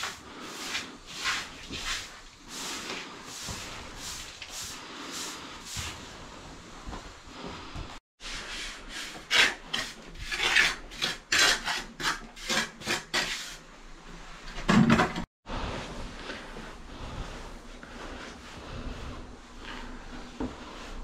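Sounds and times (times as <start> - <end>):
trowel scraping mortar: 8.4 - 13.6.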